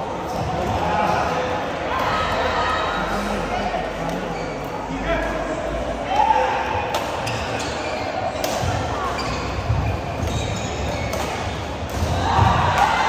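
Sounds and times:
racket hitting shuttlecock: 0:08.3 - 0:08.9, 0:09.7 - 0:13.0.

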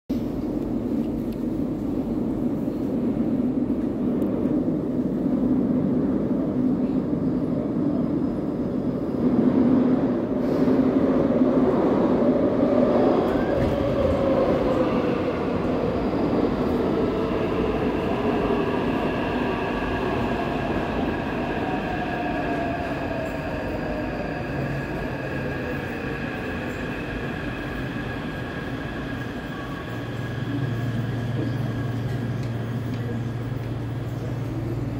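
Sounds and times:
train inverter whine: 0:00.1 - 0:34.9
train braking to a stop: 0:12.6 - 0:34.9.

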